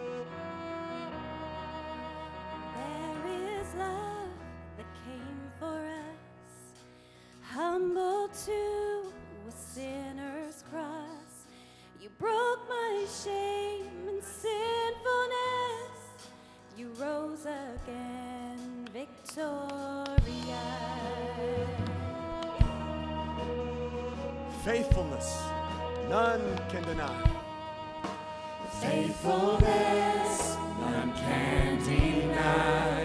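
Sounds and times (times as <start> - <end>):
worship band music: 0.0 - 9.1, 9.8 - 33.0
person singing: 28.5 - 33.0.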